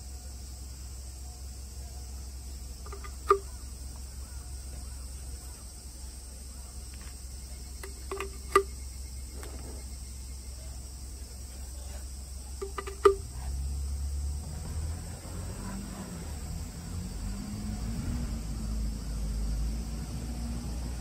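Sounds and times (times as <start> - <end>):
steady low hum: 0.0 - 21.0
sharp click: 2.9 - 3.5, 7.8 - 8.7, 12.6 - 13.2.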